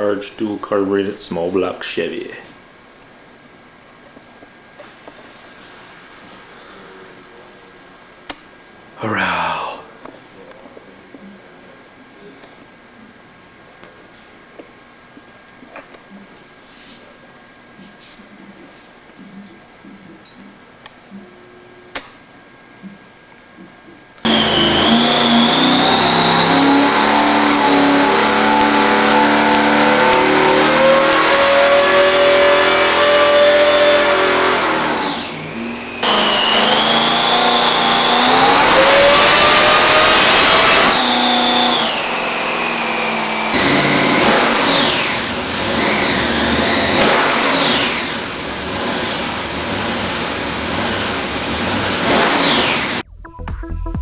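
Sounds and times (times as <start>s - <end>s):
supercharged engine revving: 24.2s - 53.0s
supercharger whine: 24.2s - 53.0s.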